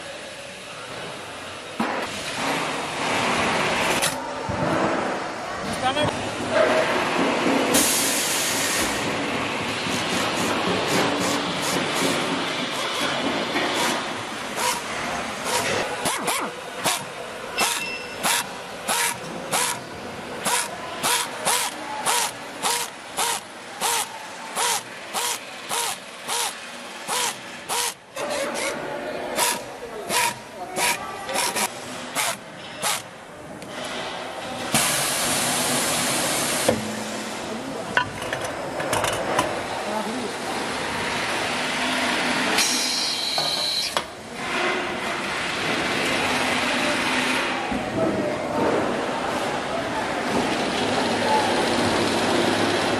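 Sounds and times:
assembly floor workshop noise: 0:00.0 - 0:52.9
power screwdriver whirring: 0:20.5 - 0:28.0.

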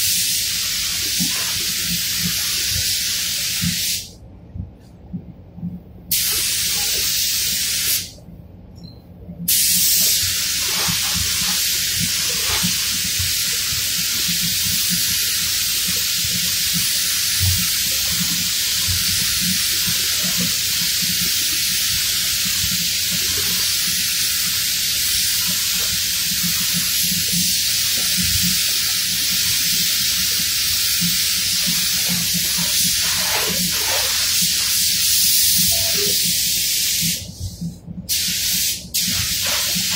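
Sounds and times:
spray gun hissing: 0:00.0 - 0:04.1, 0:06.1 - 0:08.1, 0:09.5 - 0:37.3, 0:38.1 - 0:39.9.

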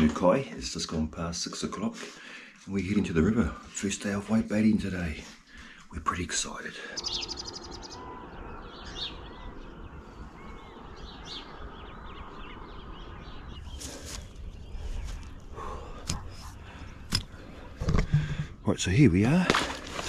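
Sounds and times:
birds chirping: 0:00.0 - 0:20.0
wind rumble on microphone: 0:07.4 - 0:16.8.

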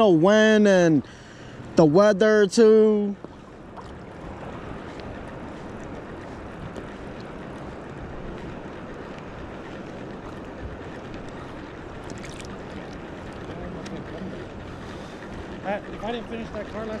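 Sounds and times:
choppy water lapping: 0:03.2 - 0:17.0
faint ticks: 0:04.7 - 0:15.6.

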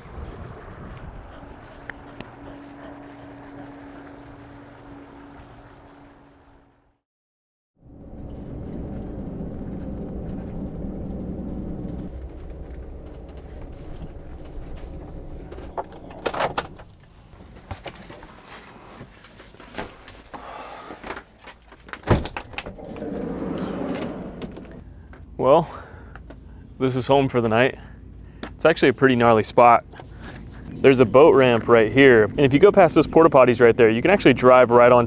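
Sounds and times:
van engine running: 0:00.0 - 0:06.8, 0:07.8 - 0:17.6.

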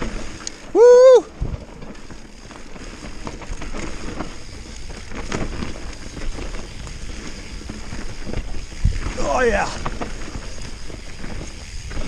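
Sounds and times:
bike rattling over bumps: 0:00.0 - 0:12.0
bike tyres rolling on dirt: 0:00.0 - 0:12.0
wind on microphone: 0:03.3 - 0:12.0.

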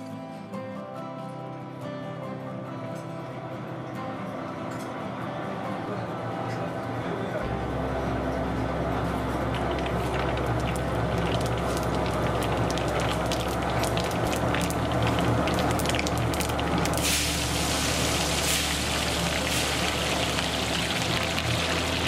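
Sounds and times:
low steady hum: 0:07.4 - 0:22.0
oil sizzling: 0:09.2 - 0:22.0
spices crackling in hot oil: 0:09.2 - 0:22.0.

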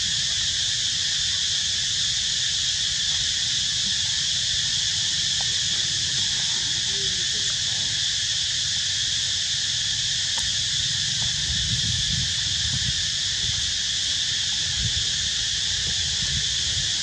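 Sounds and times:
insect chorus drone: 0:00.0 - 0:17.0
low uneven rumble: 0:03.0 - 0:08.7.

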